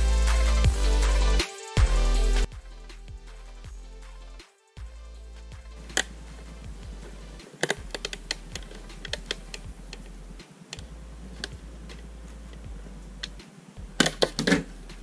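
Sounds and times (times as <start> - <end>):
small plastic clicks: 7.4 - 10.1.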